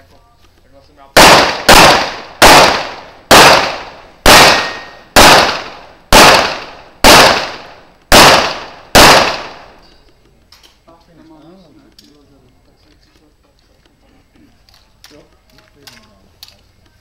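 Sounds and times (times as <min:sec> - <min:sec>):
pistol shots: 0:01.2 - 0:09.8.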